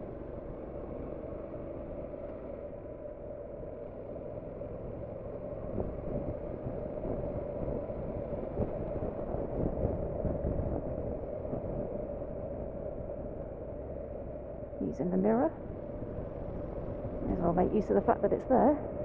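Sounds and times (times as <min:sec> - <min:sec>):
motorcycle engine: 0:00.0 - 0:19.0
wind noise: 0:05.5 - 0:19.0
knocks and jolts on rough road: 0:15.6 - 0:17.5.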